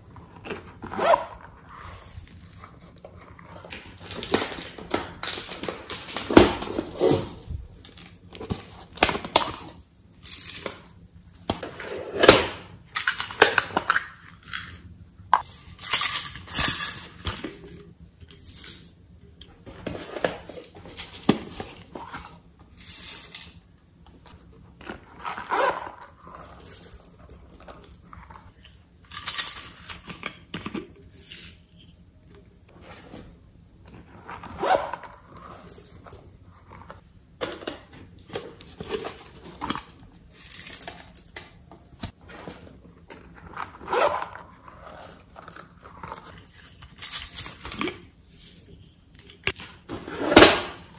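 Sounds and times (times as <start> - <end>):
plastic bottles crinkling and creaking: 2.2 - 9.0.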